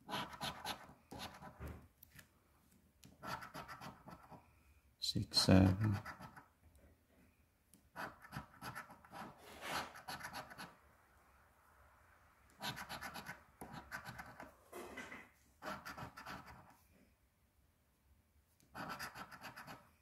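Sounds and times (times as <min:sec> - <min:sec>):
coin scratching lottery ticket: 0:00.1 - 0:01.5, 0:03.2 - 0:04.4, 0:18.7 - 0:19.8.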